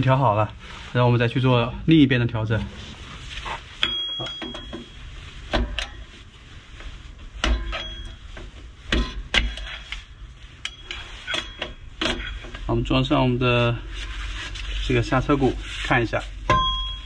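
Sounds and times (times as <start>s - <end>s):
metallic knocks and clinks: 3.8s - 5.0s.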